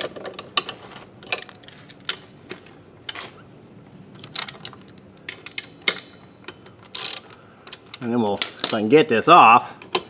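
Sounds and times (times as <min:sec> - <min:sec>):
ratchet clicking: 0:06.9 - 0:08.8.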